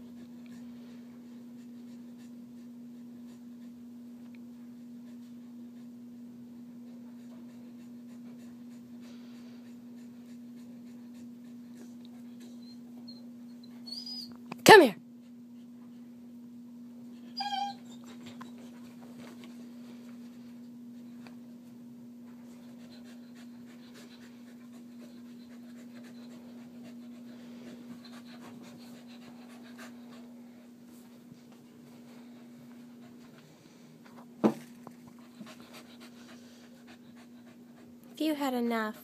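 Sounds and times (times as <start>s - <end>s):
dog whining: 12.4s - 14.4s, 17.2s - 18.7s
dog yelping: 17.4s - 18.2s.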